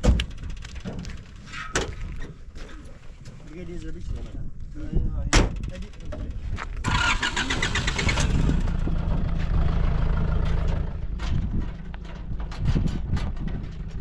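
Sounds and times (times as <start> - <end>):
engine starter cranking: 6.8 - 9.0
truck engine idling: 6.8 - 12.7.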